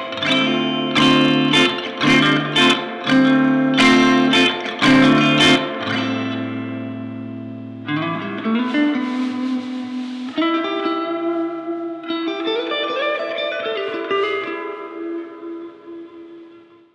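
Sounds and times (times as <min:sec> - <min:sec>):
electric guitar chords ringing: 0:00.0 - 0:16.9.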